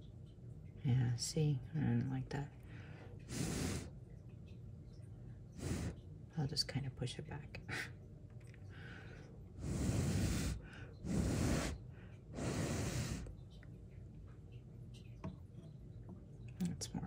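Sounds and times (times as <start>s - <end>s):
breaths blown into microphone: 9.6s - 11.8s, 12.4s - 13.3s.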